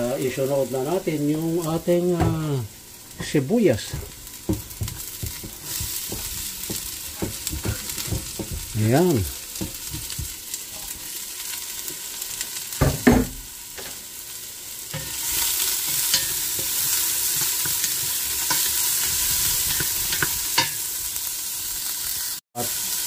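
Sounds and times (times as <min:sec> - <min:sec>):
onion sizzling in oil: 0:00.0 - 0:23.0
wooden spatula scraping a pot: 0:03.2 - 0:08.8
knock on pot: 0:03.9 - 0:08.7, 0:12.8 - 0:13.4.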